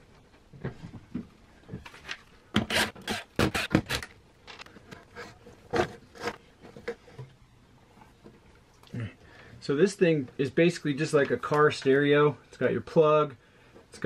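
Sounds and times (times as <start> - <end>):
scrapes and knocks on wood: 4.5 - 7.3.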